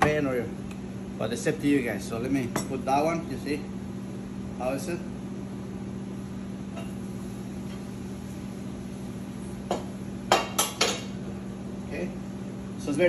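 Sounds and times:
kitchen hum: 0.0s - 13.0s.

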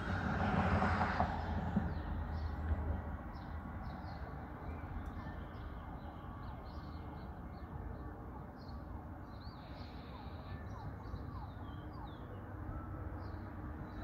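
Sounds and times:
distant emergency siren: 10.0s - 13.8s.

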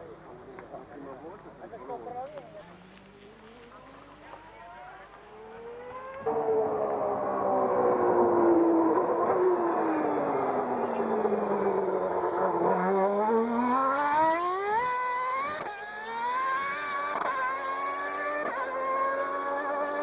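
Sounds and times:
engine upshifts: 1.9s - 20.0s
racing car engine accelerating: 5.0s - 20.0s.

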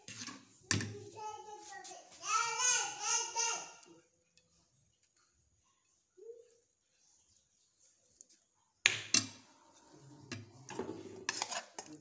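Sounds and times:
spoon scraping metal saucepan: 0.0s - 0.6s, 9.6s - 12.0s.

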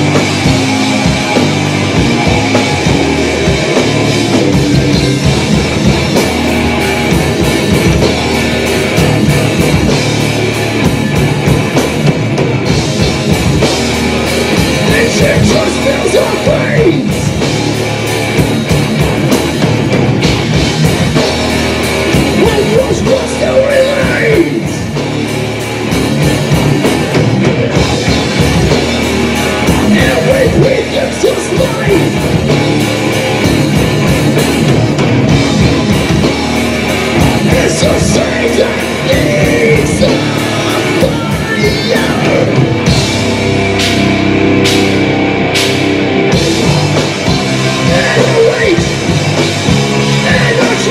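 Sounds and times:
bass guitar: 0.0s - 50.9s
distorted electric guitars: 0.0s - 50.9s
drum kit: 0.0s - 50.9s
person singing: 14.8s - 17.3s, 22.4s - 24.8s, 29.7s - 32.2s, 37.4s - 42.7s, 47.2s - 49.0s, 50.1s - 50.9s.

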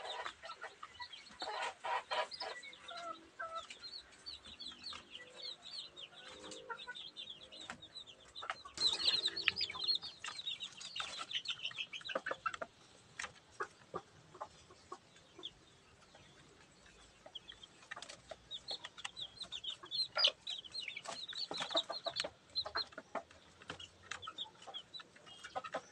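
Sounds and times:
chicks peeping: 0.0s - 25.9s
hen clucking: 0.0s - 25.9s.

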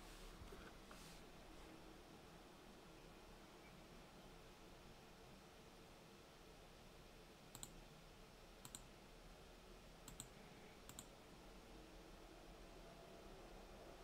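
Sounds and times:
faint room hiss: 0.0s - 14.0s
computer mouse clicks: 7.5s - 7.8s, 8.6s - 8.9s, 10.0s - 11.2s.

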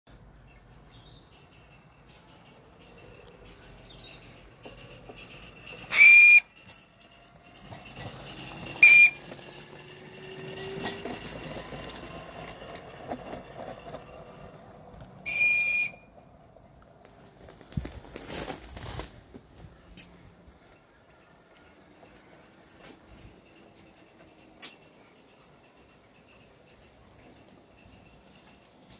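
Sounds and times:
high-pitched steam whistle blasts: 5.9s - 6.7s, 8.8s - 9.3s, 15.2s - 16.1s.

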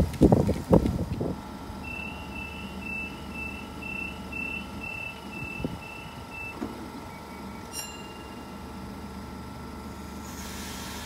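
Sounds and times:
low hum of stopped train: 0.0s - 11.0s
door-closing warning beeps: 1.8s - 8.7s.

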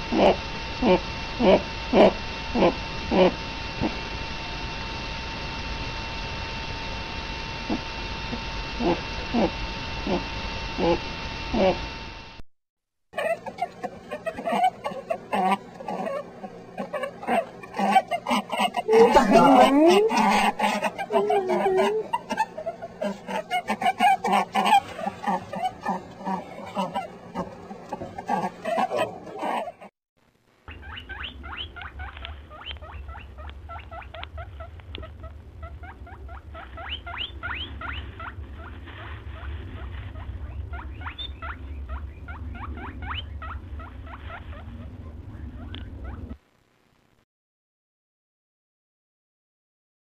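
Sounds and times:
steady low rumble: 30.8s - 46.4s
rabbit scratching in sand: 35.6s - 41.6s, 42.5s - 46.2s.

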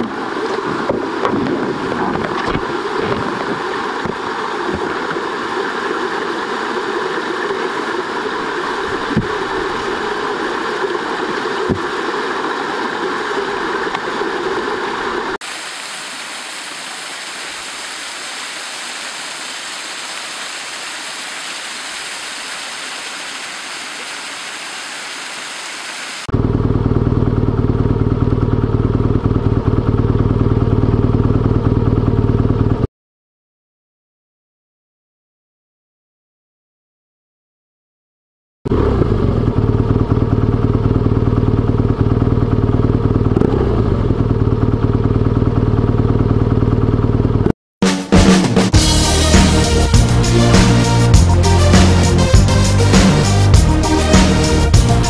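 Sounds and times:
deep engine rumble: 26.3s - 32.9s, 38.7s - 47.5s, 48.8s - 55.0s
motorcycle engine running: 26.3s - 32.9s, 38.7s - 47.5s.

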